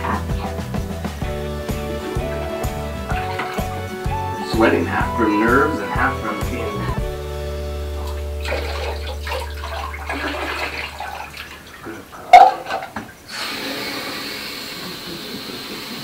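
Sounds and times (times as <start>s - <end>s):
water splashing and dripping: 0.0s - 5.1s, 7.9s - 13.8s
water running from shower tap: 0.0s - 6.7s, 8.0s - 11.8s, 12.6s - 16.0s.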